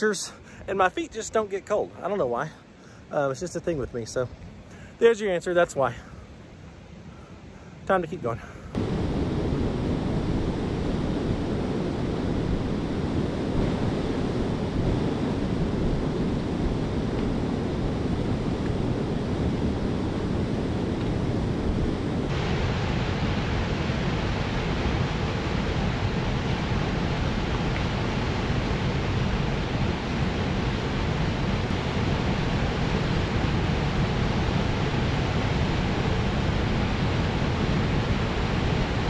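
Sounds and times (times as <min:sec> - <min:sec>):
wind buffeting microphone: 0:08.8 - 0:39.0
river rushing over rapids: 0:22.3 - 0:39.0.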